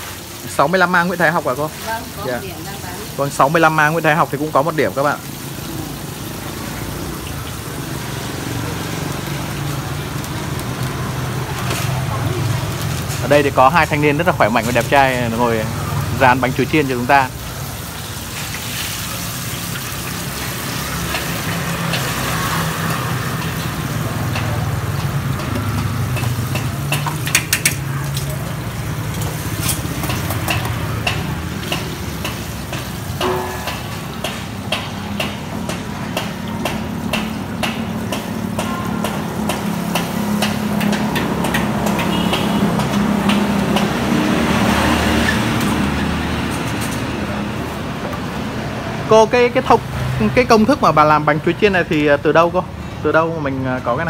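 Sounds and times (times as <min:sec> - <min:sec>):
deep-frying sizzle in oil: 0:00.0 - 0:54.0
street traffic rumble: 0:00.0 - 0:54.0
metal tongs clinking on wok: 0:23.4 - 0:34.4.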